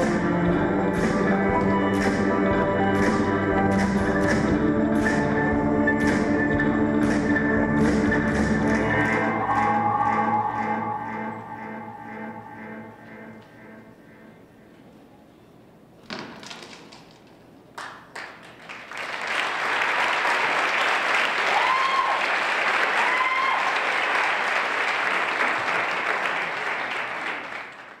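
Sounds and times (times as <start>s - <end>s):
audience applauding: 8.3s - 12.6s, 17.8s - 28.0s
crowd whooping: 8.8s - 13.0s, 21.3s - 24.0s.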